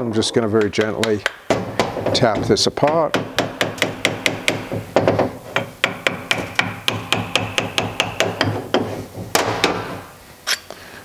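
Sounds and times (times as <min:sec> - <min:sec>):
small hammer tapping metal: 0:02.8 - 0:08.9.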